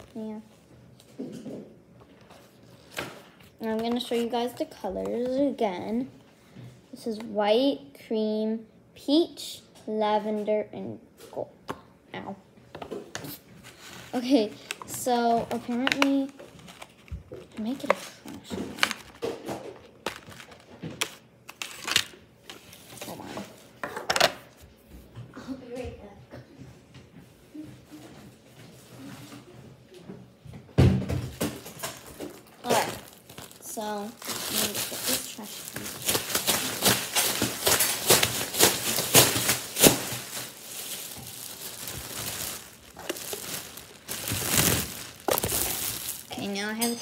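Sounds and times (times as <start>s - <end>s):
plastic wrapping crinkling: 13.3s - 23.5s, 31.4s - 47.0s
clicks and knocks of small objects: 31.4s - 47.0s.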